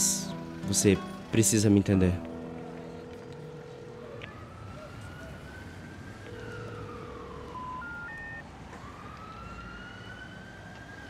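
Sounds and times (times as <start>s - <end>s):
siren wailing: 2.5s - 11.0s.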